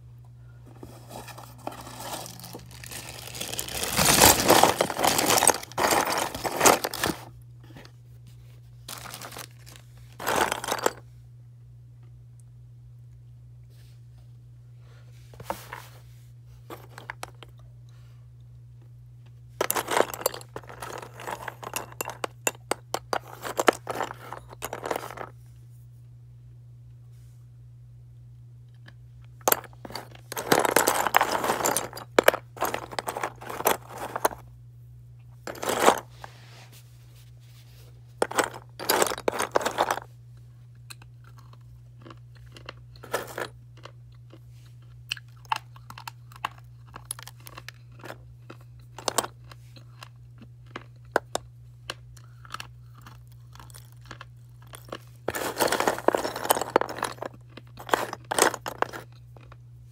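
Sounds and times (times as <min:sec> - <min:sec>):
slate pencils being chewed: 0:40.7 - 0:59.6.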